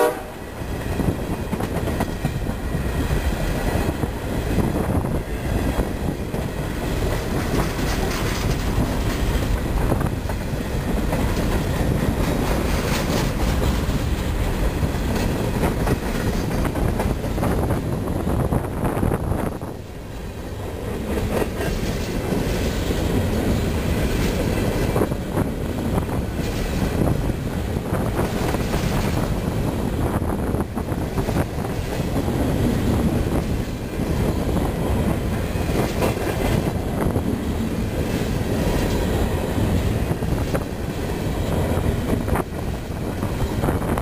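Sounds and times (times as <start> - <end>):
steel wheels rumbling on rail: 0.0 - 44.0.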